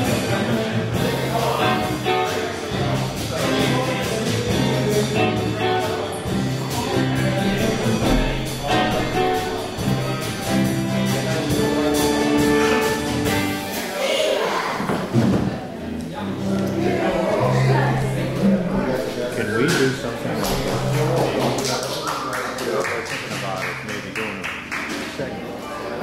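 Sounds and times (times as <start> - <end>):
live band playing: 0.0 - 14.2, 16.2 - 21.7
drum hits: 6.3 - 11.8.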